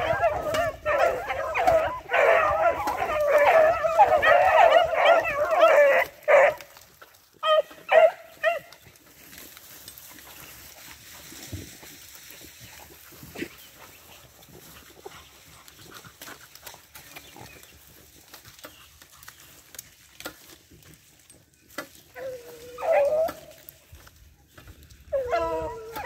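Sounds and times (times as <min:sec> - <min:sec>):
hound baying: 0:00.0 - 0:06.8, 0:07.4 - 0:08.8, 0:22.1 - 0:23.8, 0:25.1 - 0:26.0
rustling in grass: 0:00.0 - 0:26.0.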